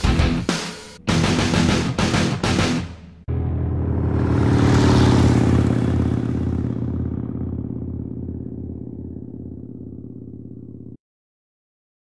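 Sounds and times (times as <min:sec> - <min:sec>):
motorcycle engine running: 0:03.3 - 0:11.0.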